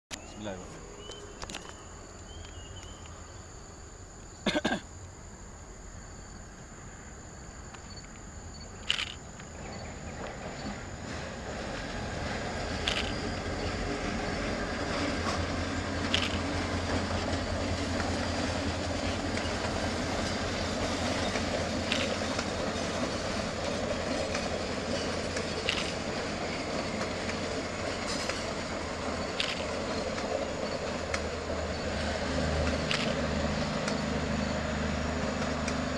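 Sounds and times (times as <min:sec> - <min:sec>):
train wheels on rails: 0:00.1 - 0:03.9, 0:07.6 - 0:35.9
locomotive engine hum: 0:05.4 - 0:35.9
sharp clicks: 0:08.8 - 0:09.5, 0:16.1 - 0:16.5, 0:29.3 - 0:30.3, 0:32.7 - 0:33.2.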